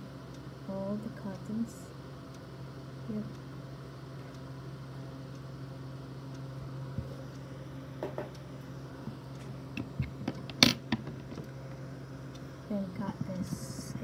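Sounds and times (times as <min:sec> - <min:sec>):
knock on wooden table: 0:08.0 - 0:08.3.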